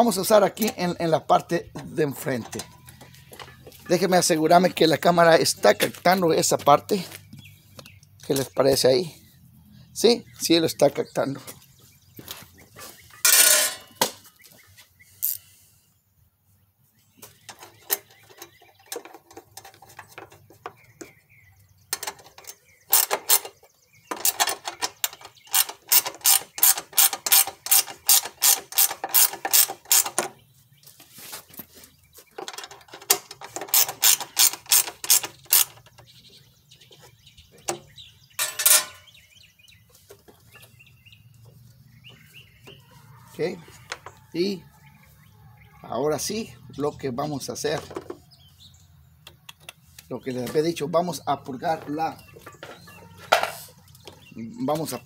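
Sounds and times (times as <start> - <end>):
ratchet wrench clicking: 24.2 - 30.2, 33.6 - 35.8.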